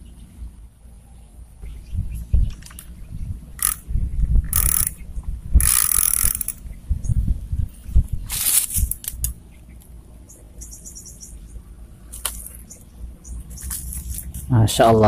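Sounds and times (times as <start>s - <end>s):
rustling noise: 7.0s - 9.3s, 13.5s - 15.0s.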